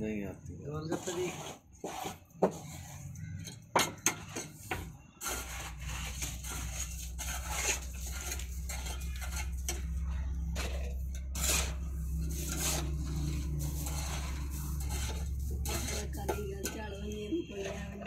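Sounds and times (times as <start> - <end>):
metal rod scraping metal: 0.8 - 18.0
steady low hum: 6.4 - 17.5.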